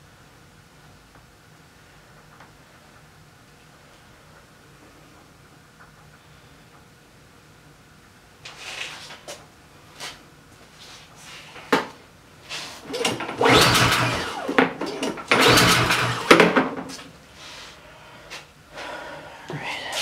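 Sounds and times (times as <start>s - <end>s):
recoil starter engine cranking: 12.8s - 16.6s.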